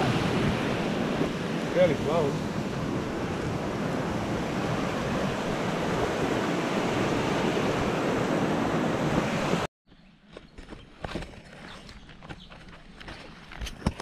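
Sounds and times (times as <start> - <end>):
water rushing over rocks: 0.0 - 9.7.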